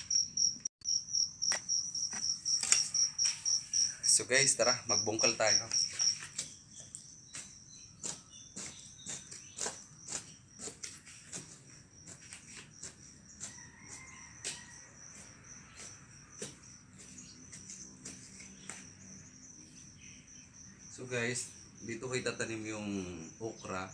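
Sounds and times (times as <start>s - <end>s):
insects chirring: 0.0s - 23.9s
hand tool striking soil: 1.4s - 4.0s, 5.1s - 19.0s.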